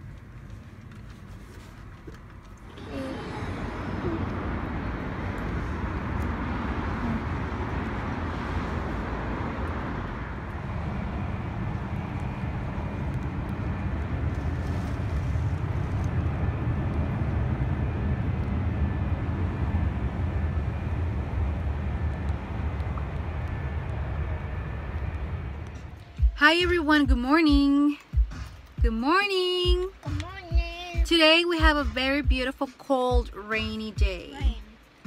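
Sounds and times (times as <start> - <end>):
rain: 0.0 - 26.2
wind rumble on microphone: 0.0 - 29.0.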